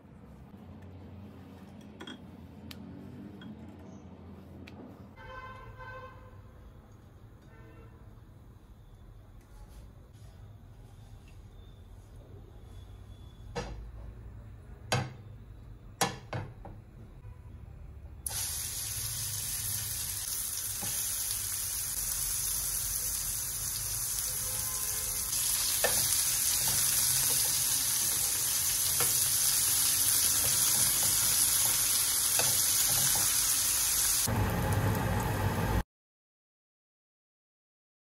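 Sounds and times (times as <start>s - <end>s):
patties sizzling in oil: 18.2s - 35.8s.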